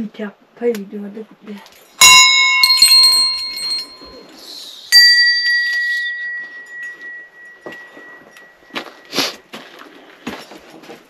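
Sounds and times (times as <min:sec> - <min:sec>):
brass bells ringing: 0:02.0 - 0:09.2.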